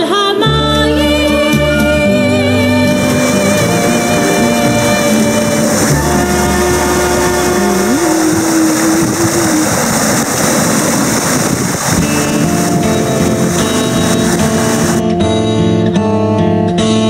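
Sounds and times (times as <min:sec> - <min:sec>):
background music: 0:00.0 - 0:09.4
loud steady rushing noise: 0:02.8 - 0:15.0.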